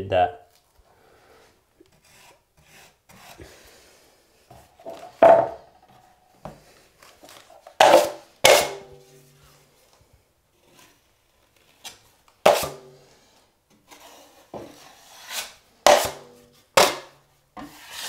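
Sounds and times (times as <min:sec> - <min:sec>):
taping knife scraping mud pan: 0:01.8 - 0:03.8, 0:10.6 - 0:18.0.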